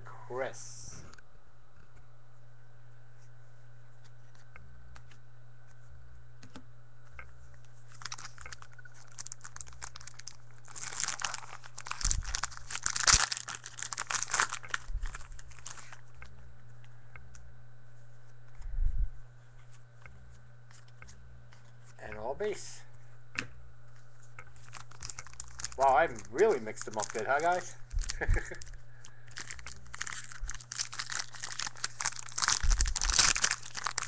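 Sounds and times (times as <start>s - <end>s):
foil wrapper tearing and crinkling: 7.9s - 16.2s, 24.5s - 34.0s.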